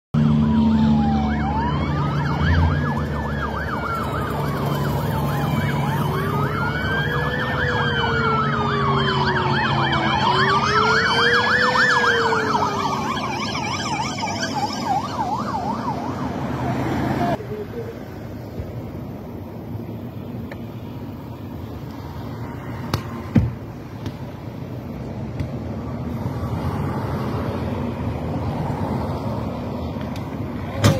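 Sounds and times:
police sirens wailing: 0:00.2 - 0:20.4, 0:26.2 - 0:30.9
traffic noise: 0:00.2 - 0:30.9.

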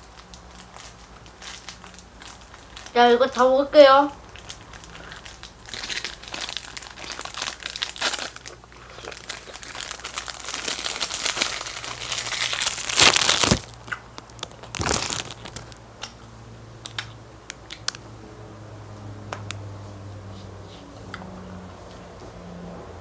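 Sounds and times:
plastic wrapper crinkling: 0:00.0 - 0:15.8.

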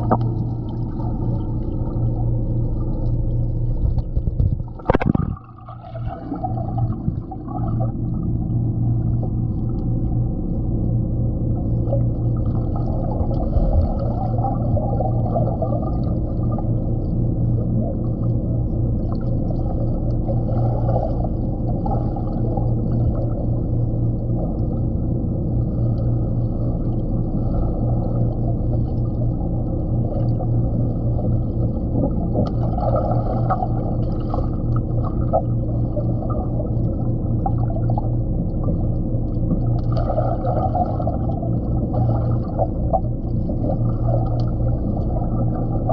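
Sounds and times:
muffled underwater water rush: 0:00.0 - 0:45.9.

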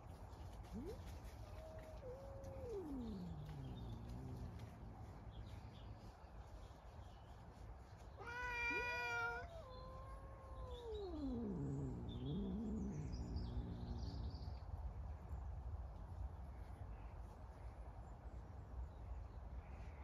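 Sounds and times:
cats caterwauling: 0:00.6 - 0:04.8, 0:08.2 - 0:14.2.

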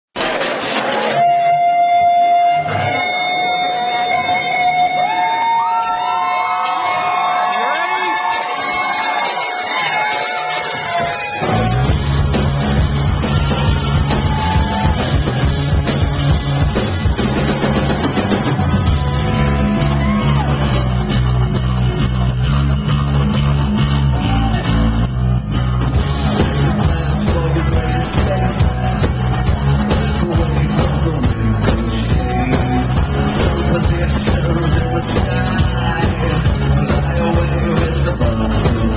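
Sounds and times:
crowd cheering: 0:00.2 - 0:38.9
live rock band with singing: 0:08.2 - 0:38.9.

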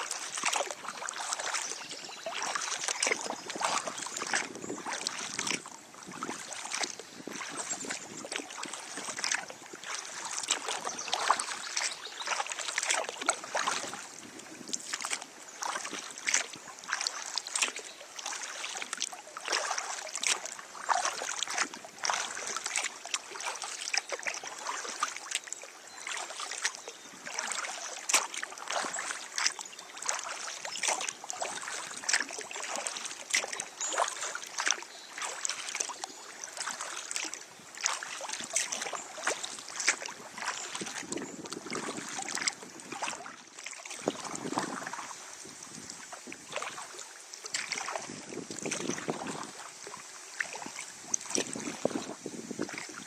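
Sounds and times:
paddle splashing in water: 0:00.0 - 0:53.0
small splashes and drips: 0:00.0 - 0:53.0.

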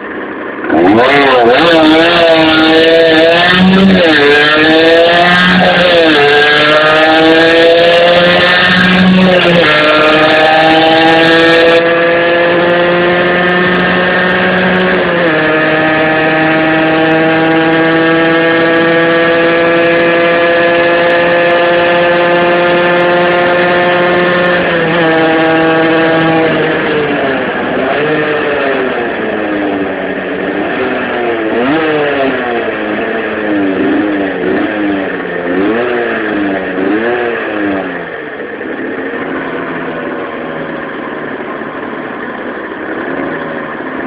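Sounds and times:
two-stroke motorbike engine revving: 0:00.0 - 0:44.0.

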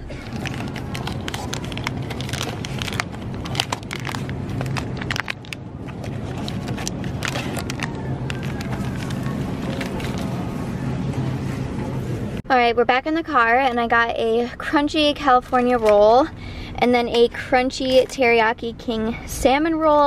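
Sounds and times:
steady low hum: 0:00.0 - 0:20.0
packets rustling and clicking: 0:00.1 - 0:10.4.

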